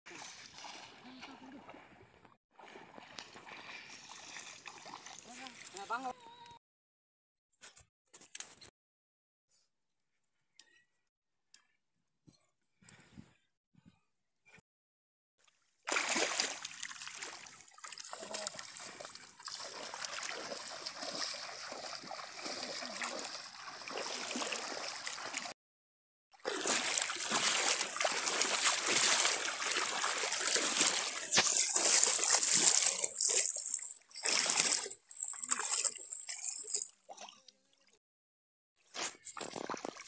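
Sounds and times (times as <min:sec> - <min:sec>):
water sloshing around wading person: 0:00.1 - 0:06.1, 0:15.9 - 0:25.6, 0:26.4 - 0:37.5, 0:39.0 - 0:40.0.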